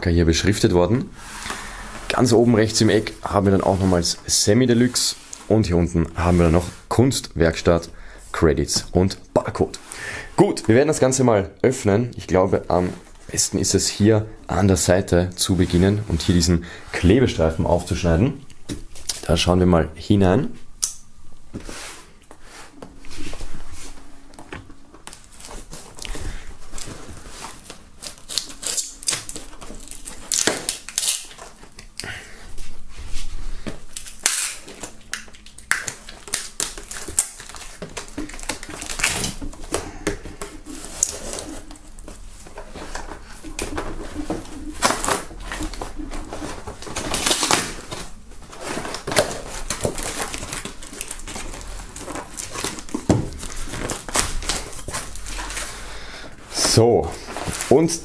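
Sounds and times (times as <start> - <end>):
knife slitting packing tape: 28.0 - 31.6, 34.0 - 39.4
cardboard scraping and rustling: 36.8 - 55.7.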